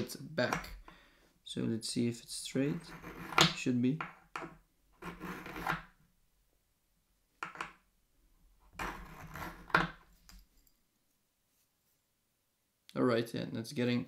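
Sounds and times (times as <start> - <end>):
knife scraping through sharpener: 5.0 - 5.9, 8.8 - 9.8.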